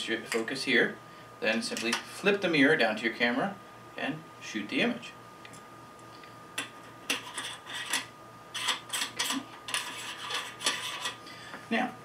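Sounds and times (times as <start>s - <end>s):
scrapes and clicks of fittings: 6.6s - 11.2s.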